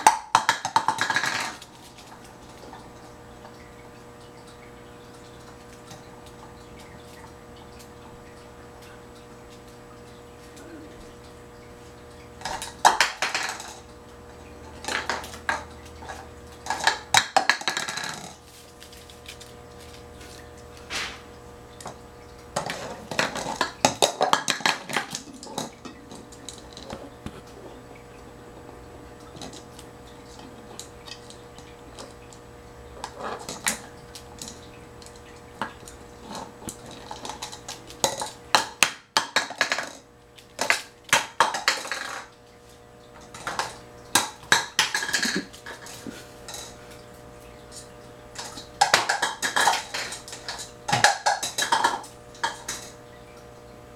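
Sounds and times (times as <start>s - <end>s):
plastic cups clattering on wooden floor: 0.0s - 2.8s, 12.4s - 13.9s, 14.8s - 18.4s, 22.6s - 27.5s, 36.2s - 42.3s, 43.2s - 46.8s, 48.4s - 53.0s.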